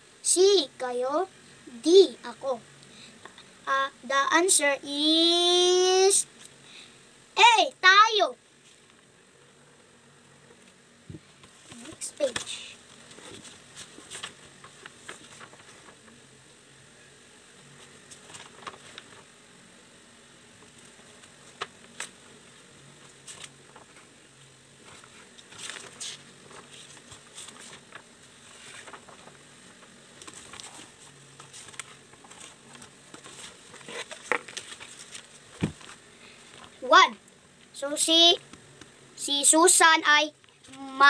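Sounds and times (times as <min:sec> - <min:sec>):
paper rustling: 0:11.4 - 0:16.2, 0:17.7 - 0:19.3, 0:22.9 - 0:24.1, 0:24.8 - 0:36.8.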